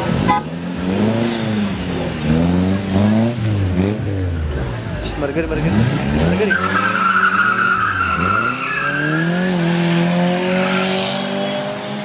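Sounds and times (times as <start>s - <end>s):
car engine revving hard: 0.0s - 12.0s
car tyres squealing: 5.6s - 11.4s.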